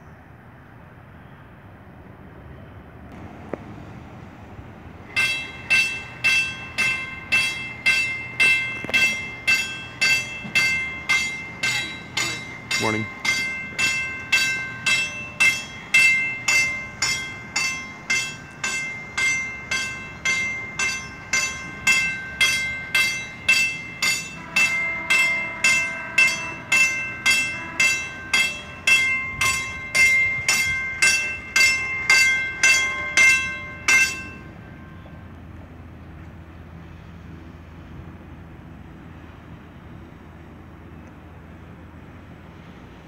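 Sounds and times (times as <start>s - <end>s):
warning bell ringing: 5.1s - 35.2s.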